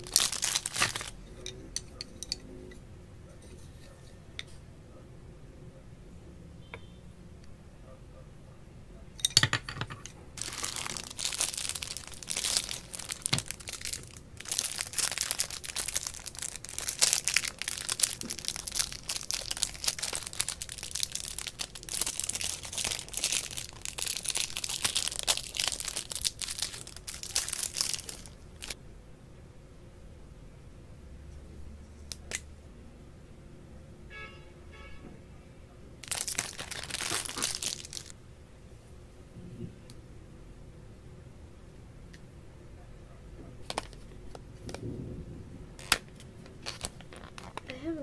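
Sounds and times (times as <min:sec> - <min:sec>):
plastic wrapper crinkling: 0:00.0 - 0:02.4, 0:10.4 - 0:28.8, 0:36.0 - 0:38.2, 0:43.6 - 0:44.8, 0:45.8 - 0:47.8.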